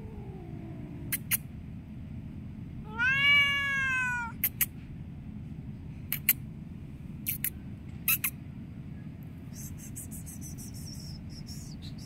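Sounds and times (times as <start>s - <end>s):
cat meowing: 0.0s - 1.4s, 2.8s - 4.6s.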